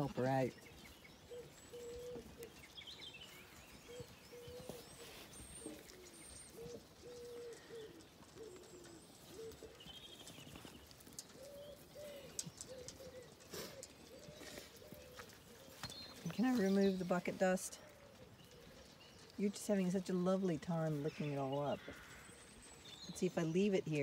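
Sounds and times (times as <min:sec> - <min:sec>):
small birds chirping: 0:00.0 - 0:24.0
pigeon cooing: 0:01.2 - 0:02.6, 0:03.8 - 0:16.0.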